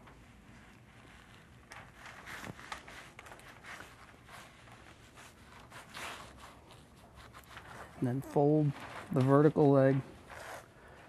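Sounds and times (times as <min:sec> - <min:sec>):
membrane rustling and scraping: 0:00.0 - 0:11.0.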